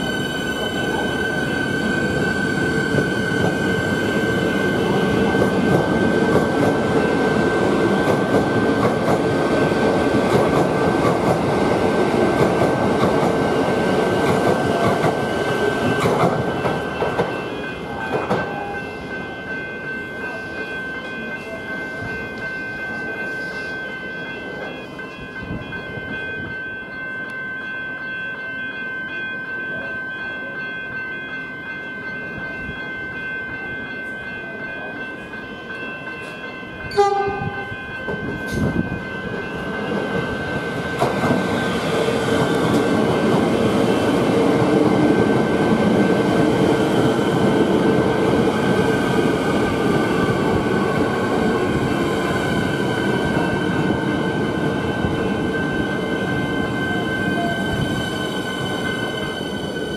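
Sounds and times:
train running noise: 0.0s - 27.4s, 31.6s - 59.9s
level crossing bells ringing: 15.2s - 54.5s
train horn blast: 36.9s - 37.7s.

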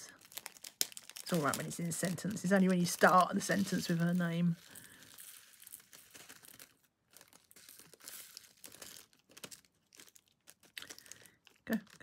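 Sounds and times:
plastic zip bag crinkling: 0.0s - 12.0s.

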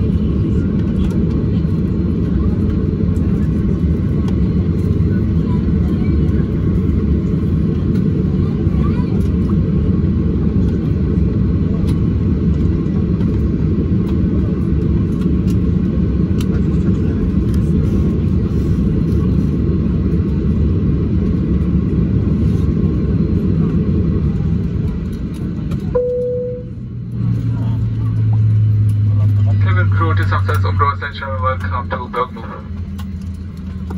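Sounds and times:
aircraft cabin rumble: 0.0s - 33.9s
short single tone: 25.9s - 26.8s.

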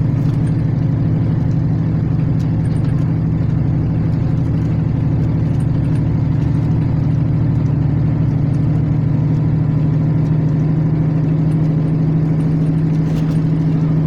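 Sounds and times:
bus diesel engine droning: 0.0s - 14.0s.

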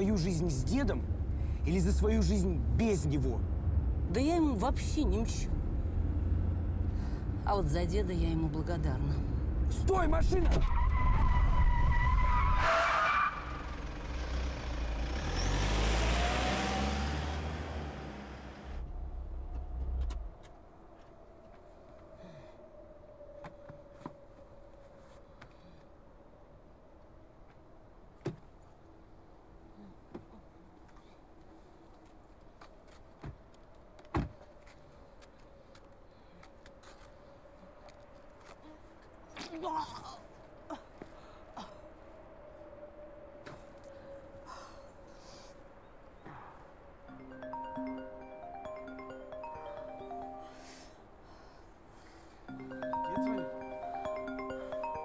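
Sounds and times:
car engine rumble: 0.0s - 10.8s, 13.4s - 20.5s.

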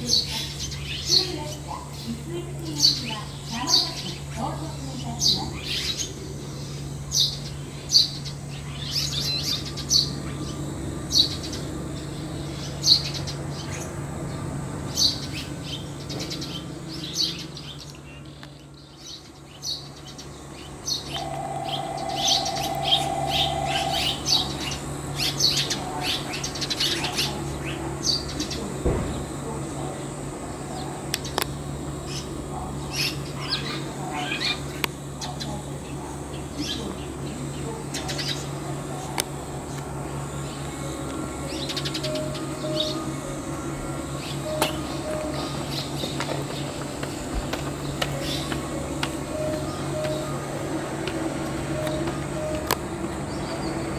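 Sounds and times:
swallows chirping: 18.9s - 28.5s.

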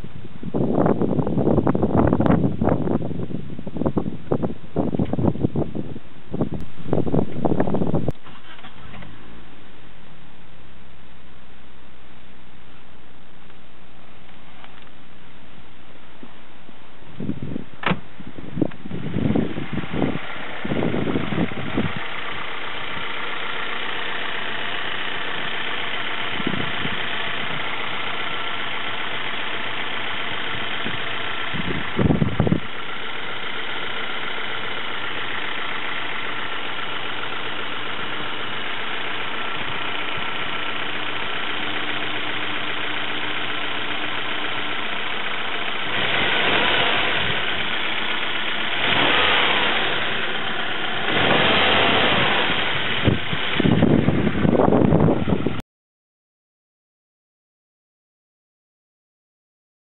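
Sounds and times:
car engine idling: 0.0s - 55.6s
loud bursts of noise: 19.1s - 54.6s.

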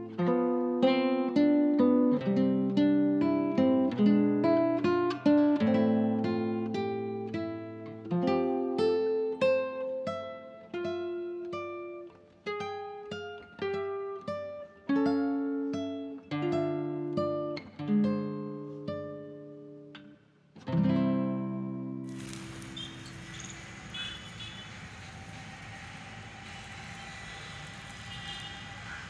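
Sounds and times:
plucked guitar melody: 0.0s - 22.1s.

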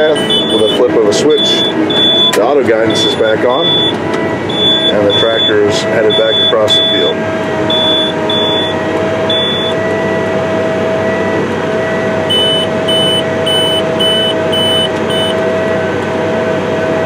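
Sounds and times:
tractor engine droning: 0.0s - 17.0s
short high electronic beeps: 0.1s - 2.4s, 7.7s - 9.8s, 12.3s - 15.4s.

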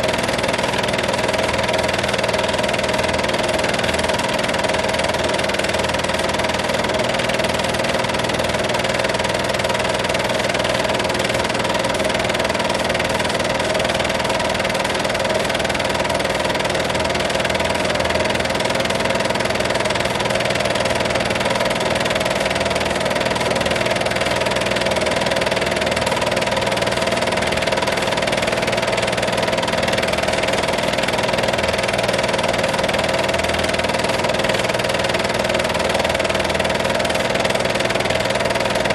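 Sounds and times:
film projector whirring: 0.0s - 38.9s.

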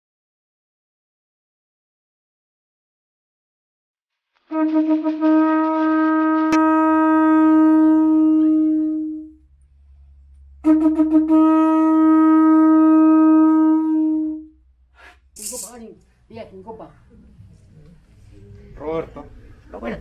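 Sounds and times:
conch-shell trumpet blasts: 4.5s - 9.4s, 10.6s - 14.6s.

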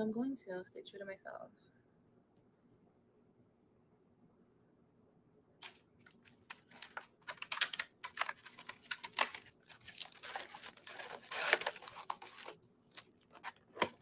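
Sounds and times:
crinkling and rustling: 5.6s - 14.0s.

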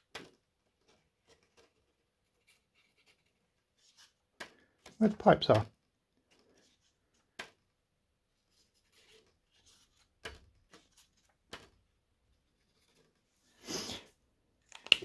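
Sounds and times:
paper handling: 8.3s - 13.3s.

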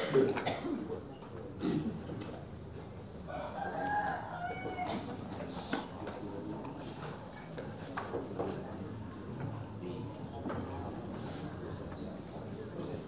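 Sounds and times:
rooster crowing: 3.3s - 5.1s.

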